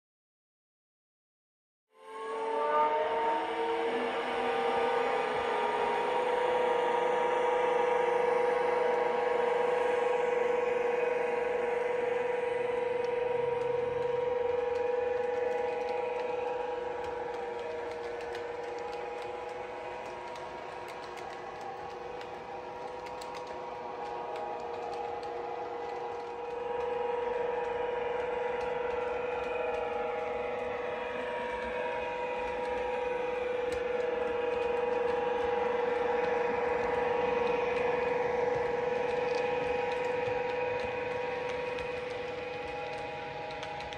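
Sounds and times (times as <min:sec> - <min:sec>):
model train motor whine: 0:03.2 - 0:43.9
model train running gear clatter: 0:14.3 - 0:26.8.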